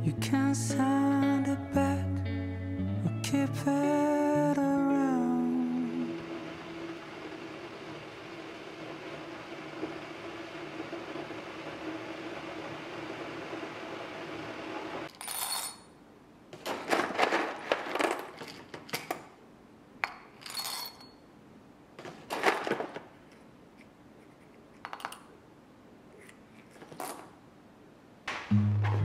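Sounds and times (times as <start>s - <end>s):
steady hum: 3.7s - 15.1s
coffee beans rattling into glass jar: 20.4s - 21.2s.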